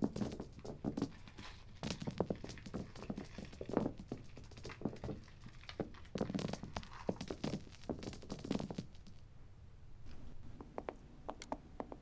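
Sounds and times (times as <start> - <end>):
coins clinking onto carpet: 0.0 - 9.2.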